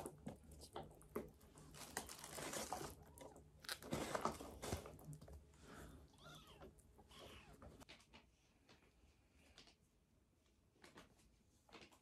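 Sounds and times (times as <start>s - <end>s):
tissue crinkling: 1.5s - 5.4s.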